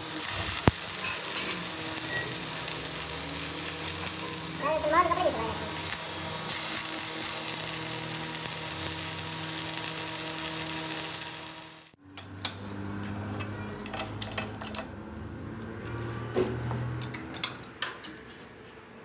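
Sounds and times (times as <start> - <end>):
arc welding hiss: 0.0 - 12.0.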